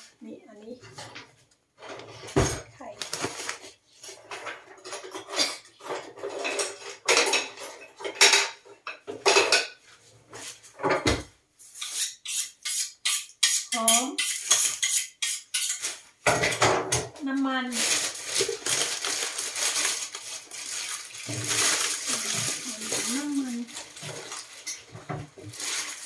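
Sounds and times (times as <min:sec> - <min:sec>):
packs and containers clattering: 0:01.8 - 0:09.6, 0:15.8 - 0:26.0
plastic packaging rustling: 0:02.0 - 0:04.5, 0:17.5 - 0:26.0.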